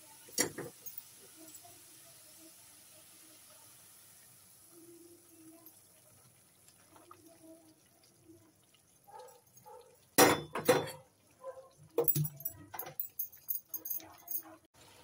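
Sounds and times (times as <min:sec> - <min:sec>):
milk trickling into a pan: 0:00.0 - 0:10.2
pots and utensils clanking: 0:00.3 - 0:01.8, 0:10.2 - 0:11.1.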